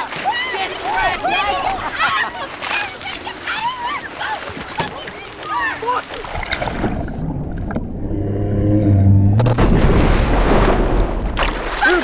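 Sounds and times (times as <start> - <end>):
churning water rumble: 0.0 - 12.0
underwater bubbling: 5.0 - 11.9
low underwater drone: 6.9 - 9.7.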